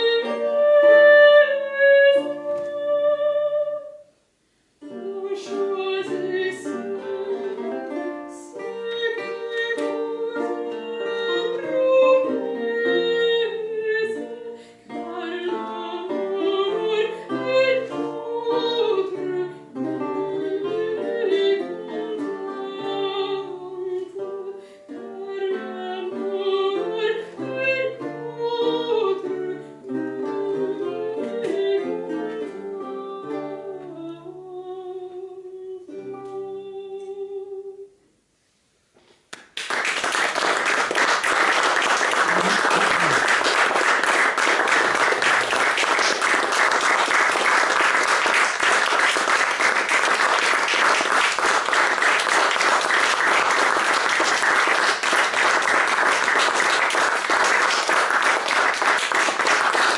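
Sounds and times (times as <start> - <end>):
lute and vihuela playing: 0.0 - 4.0, 4.8 - 37.8
woman singing: 0.0 - 4.0, 4.8 - 38.0
audience applause: 39.4 - 59.9.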